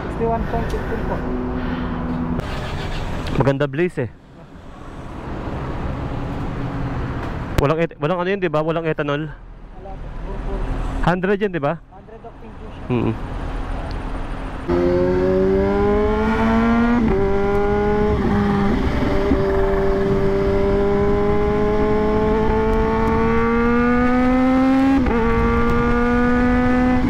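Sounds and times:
motorcycle engine accelerating: 14.6 - 27.0.

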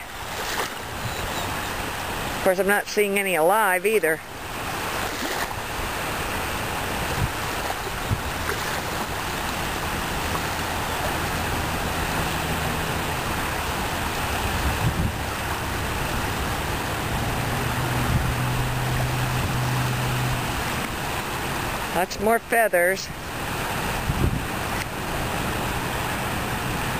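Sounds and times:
waves lapping on sand: 0.0 - 26.9
wind buffeting microphone: 5.5 - 21.2, 23.6 - 26.9.

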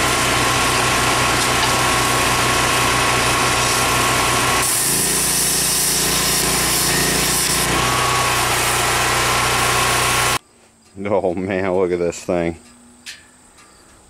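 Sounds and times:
air tool cutting sheet steel: 0.0 - 10.4
steady mechanical drone: 0.0 - 10.4.

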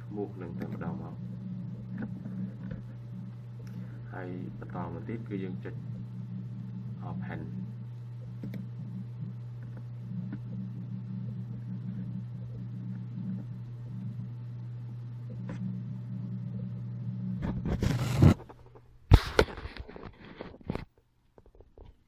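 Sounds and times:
low hum: 0.0 - 18.8
rustling noise: 17.5 - 22.0.

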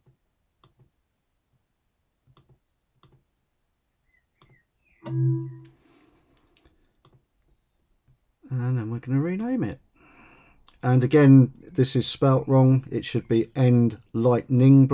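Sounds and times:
computer mouse clicks: 0.0 - 0.9, 2.2 - 3.2, 4.4 - 4.6, 6.4 - 7.6.

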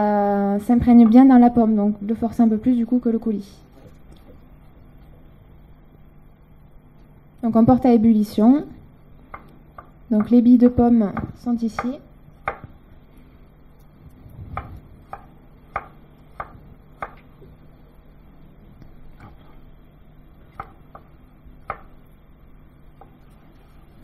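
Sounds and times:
low hum: 0.0 - 24.0
knife chopping on cutting board: 14.6 - 17.2, 20.5 - 22.0.

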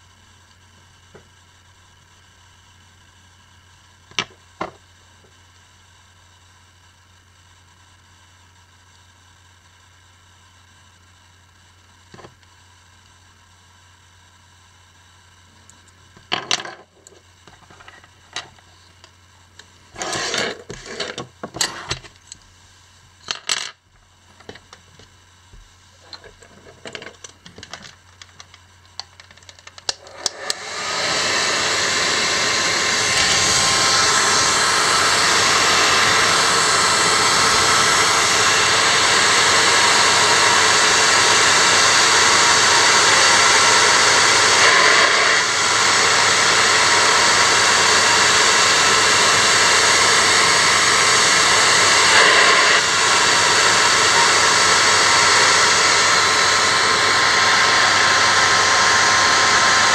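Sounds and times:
hair dryer running: 4.2 - 4.8, 19.9 - 22.0, 24.4 - 59.9.

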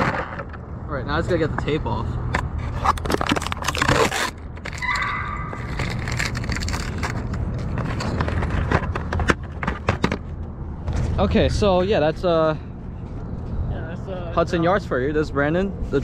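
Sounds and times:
adhesive tape peeling: 2.9 - 7.9.

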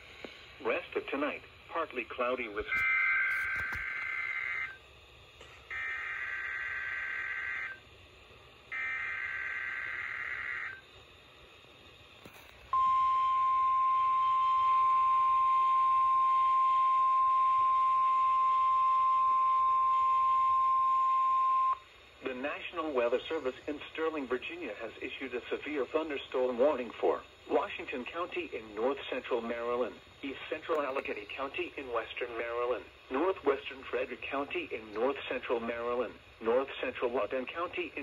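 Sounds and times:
steady warning alarm tone: 2.7 - 4.8, 5.7 - 7.8, 8.7 - 10.8, 12.8 - 21.8.

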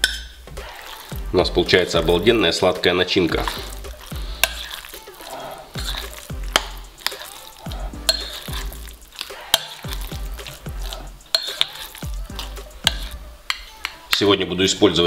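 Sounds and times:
soft squelching of stirred filling: 0.0 - 14.4
utensil clinking against glass: 5.8 - 10.7, 11.3 - 14.3.

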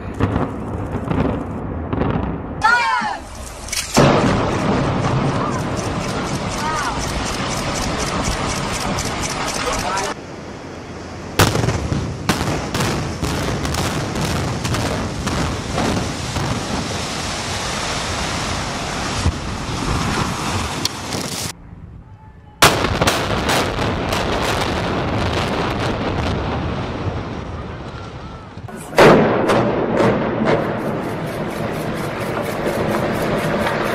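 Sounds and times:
building collapsing rumble: 3.2 - 10.2
charge detonations cracking: 3.8 - 10.2, 28.8 - 33.9
explosive blast: 3.9 - 10.2, 11.4 - 17.5, 22.6 - 27.8, 28.6 - 33.9.

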